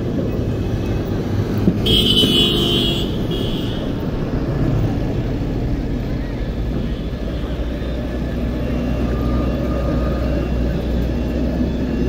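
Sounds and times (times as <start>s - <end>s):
traffic engines rumbling: 0.0s - 12.0s
high-pitched vehicle horn: 1.8s - 3.9s.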